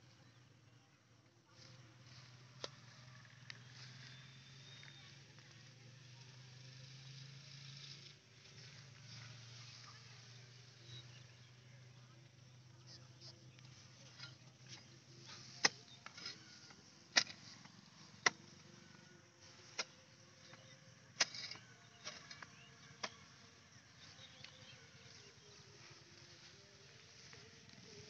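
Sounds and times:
hoe chopping into wet soil: 0:17.1 - 0:17.6.

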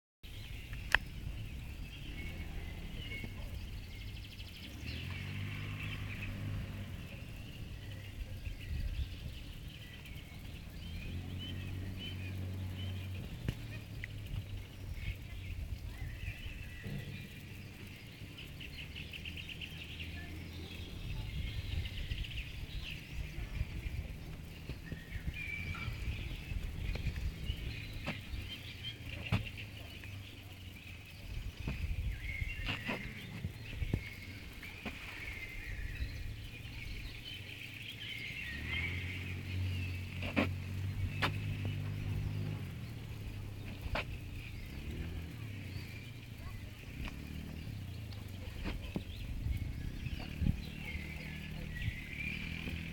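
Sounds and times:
small birds chirping and trilling: 0:00.2 - 0:52.9.

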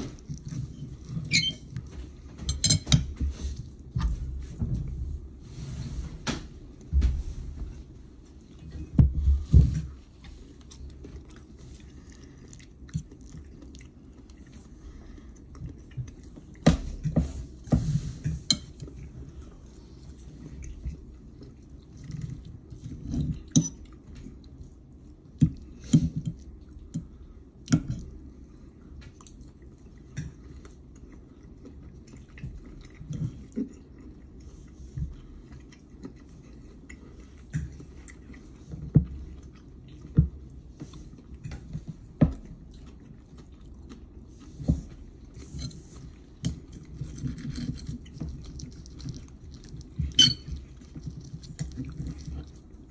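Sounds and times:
person chewing: 0:09.9 - 0:17.0, 0:29.0 - 0:52.9
fork scraping ceramic plate: 0:50.1 - 0:50.5.

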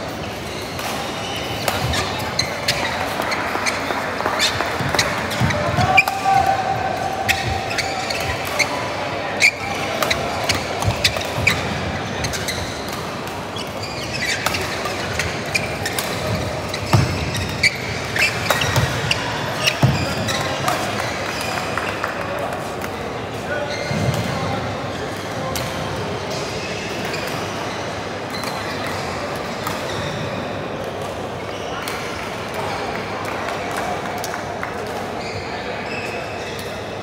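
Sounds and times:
rackets striking shuttlecock: 0:04.4 - 0:21.0.

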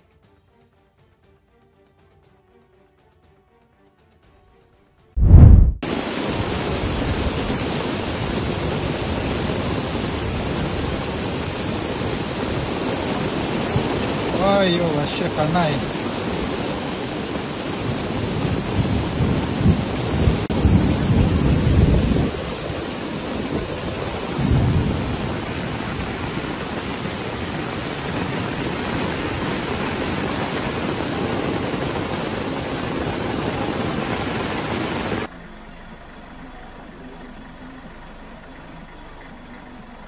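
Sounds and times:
low rumbles: 0:05.2 - 0:05.9
wind: 0:05.2 - 0:40.0
heavy rain pouring: 0:05.3 - 0:40.0.

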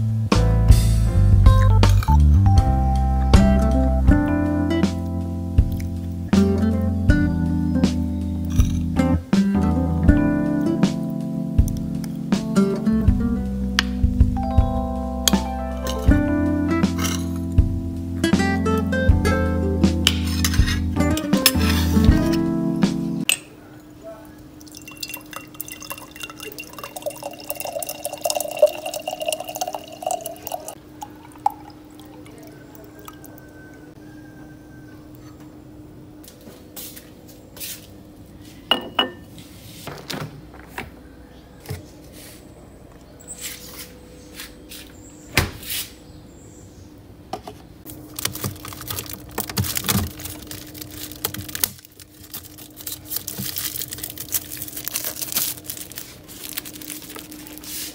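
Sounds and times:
items rustling and knocking: 0:08.5 - 0:08.9, 0:47.4 - 0:57.9
water pouring into glass jar: 0:24.5 - 0:33.6
glass clinking: 0:24.6 - 0:32.5, 0:38.7 - 0:39.3.

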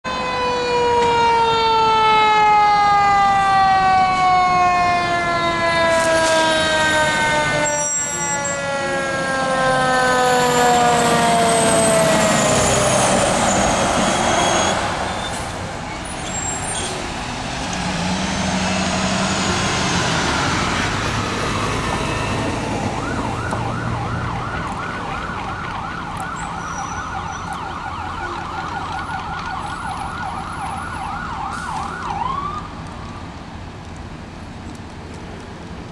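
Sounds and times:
emergency siren wailing: 0:00.0 - 0:33.6
traffic noise: 0:00.0 - 0:35.9
siren fast warbling yelp: 0:22.2 - 0:28.9.

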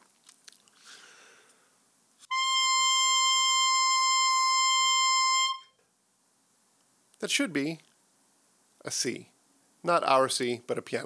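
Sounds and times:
high steady reed tone: 0:02.2 - 0:05.8.

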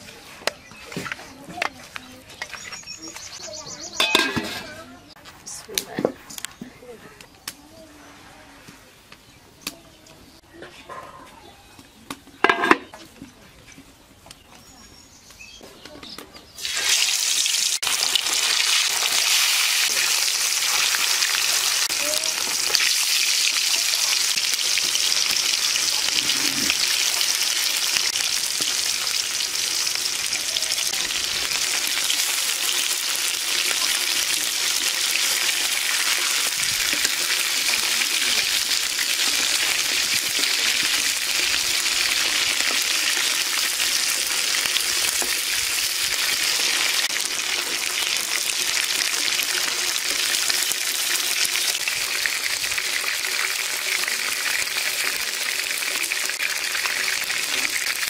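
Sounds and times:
fish sizzling in hot oil: 0:16.6 - 0:58.0.

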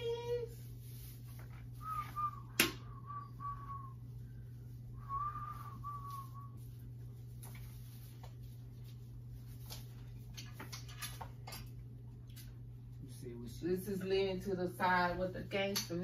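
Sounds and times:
person whistling a tune: 0:01.8 - 0:04.0, 0:05.0 - 0:06.6.

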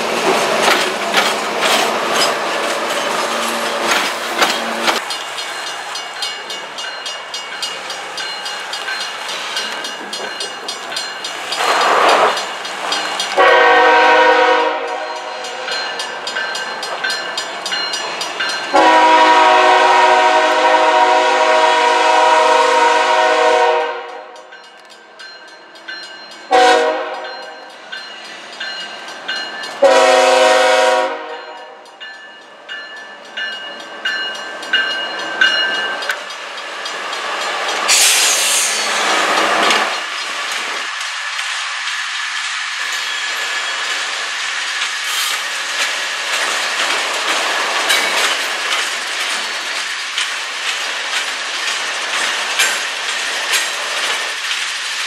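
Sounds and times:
train running: 0:00.0 - 0:55.0
locomotive horn blasts: 0:13.4 - 0:15.5, 0:18.7 - 0:24.4, 0:26.5 - 0:27.6, 0:29.8 - 0:31.8.

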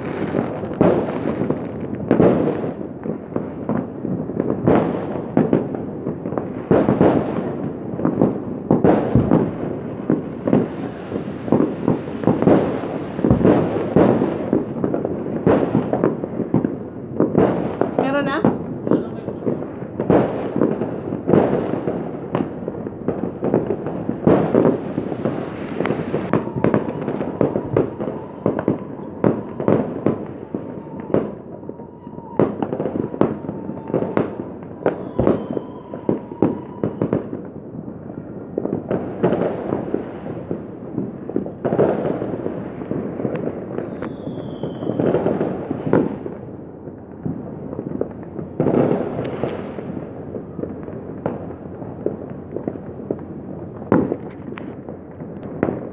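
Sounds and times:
fireworks crackling and banging: 0:00.0 - 0:55.9
loud firework blasts: 0:00.0 - 0:55.9.

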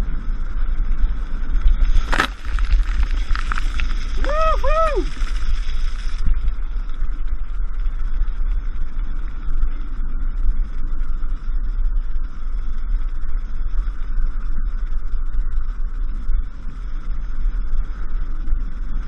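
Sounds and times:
faint steady hum: 0:00.0 - 0:19.0
kite buggy rolling on sand: 0:00.0 - 0:19.0
small ticks: 0:01.6 - 0:04.4.

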